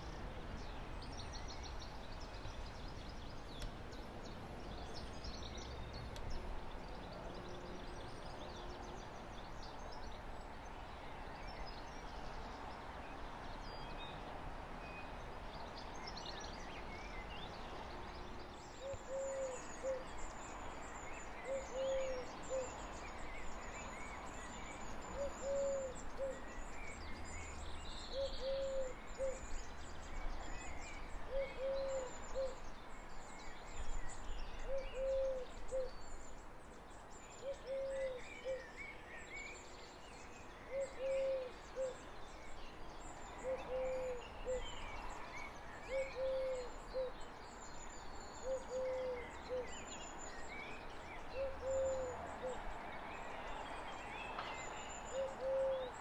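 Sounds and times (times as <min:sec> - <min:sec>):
small birds chirping: 0:00.0 - 0:14.3, 0:15.0 - 0:56.0
dove cooing: 0:18.8 - 0:20.0, 0:21.5 - 0:22.6, 0:25.2 - 0:26.4, 0:28.2 - 0:29.4, 0:31.3 - 0:32.5, 0:34.7 - 0:35.9, 0:37.4 - 0:38.6, 0:40.7 - 0:42.0, 0:43.4 - 0:44.6, 0:45.9 - 0:47.1, 0:48.4 - 0:49.7, 0:51.4 - 0:52.2, 0:55.1 - 0:55.9.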